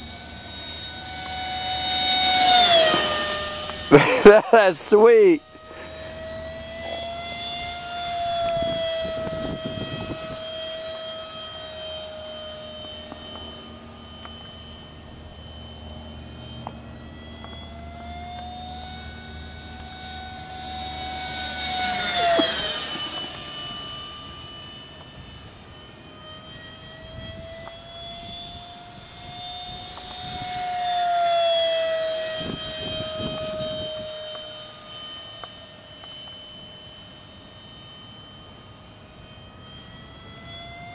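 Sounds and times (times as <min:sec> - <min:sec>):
model jet fan whining: 0:00.0 - 0:40.9.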